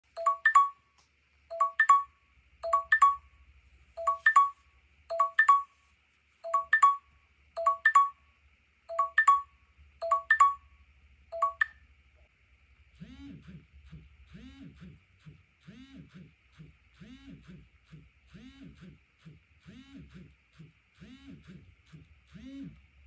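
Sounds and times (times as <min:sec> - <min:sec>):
phone timer alarm chime: 0:00.1 - 0:00.8, 0:01.5 - 0:03.3, 0:04.0 - 0:05.8, 0:06.4 - 0:08.2, 0:08.9 - 0:10.7, 0:11.3 - 0:11.8.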